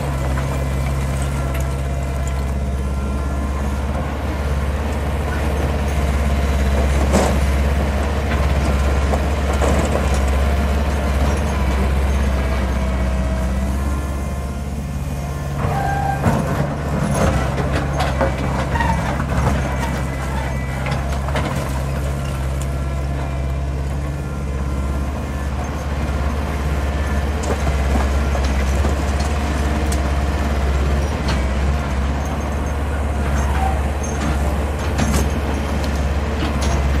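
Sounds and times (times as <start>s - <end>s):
digger diesel engine humming: 0.0s - 37.0s
short squeaks: 15.5s - 21.2s, 32.2s - 34.4s.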